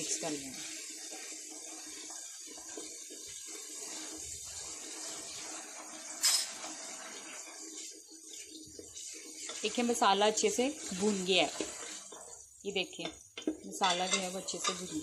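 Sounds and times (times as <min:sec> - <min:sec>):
masala sizzling in a pot: 0:00.0 - 0:15.0
spoon clinking against pot: 0:06.2 - 0:06.6, 0:13.0 - 0:15.0
spoon stirring: 0:08.5 - 0:15.0.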